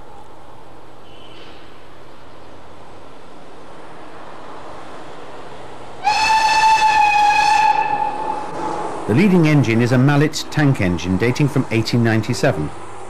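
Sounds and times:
steam train approaching: 0:00.0 - 0:13.0
steam locomotive whistle: 0:06.0 - 0:08.5.

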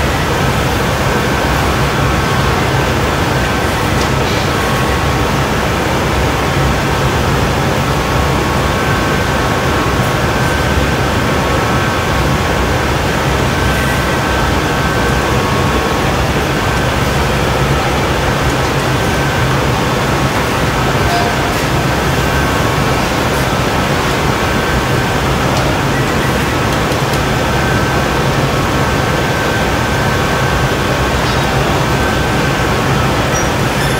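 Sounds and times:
furnaces and ventilation roaring: 0:00.0 - 0:33.9.

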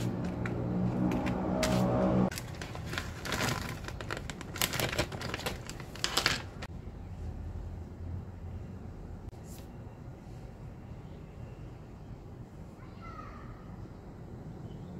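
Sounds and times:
plastic bag crinkling: 0:02.3 - 0:06.7.

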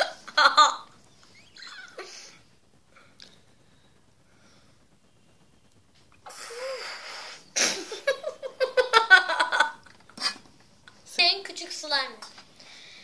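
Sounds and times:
boy laughing: 0:01.5 - 0:02.3, 0:07.6 - 0:10.4
air blown through straw into slime: 0:06.2 - 0:07.6.

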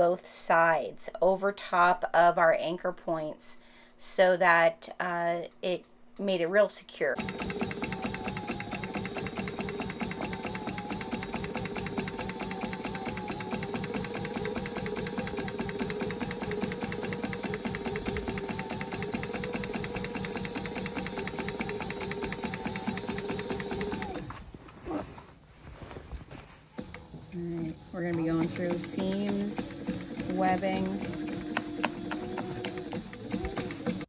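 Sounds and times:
sewing machine stitching: 0:07.2 - 0:24.3, 0:26.8 - 0:34.0.

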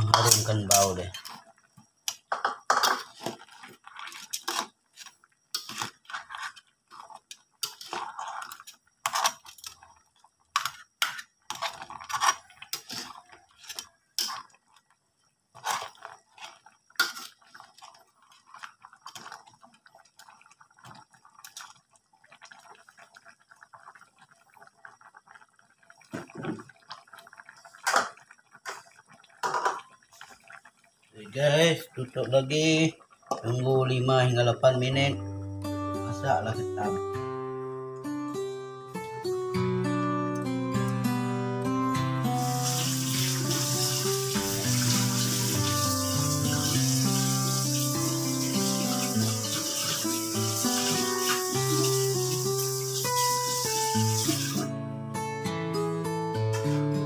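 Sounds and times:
metal spatula scraping wok: 0:10.6 - 0:14.4.

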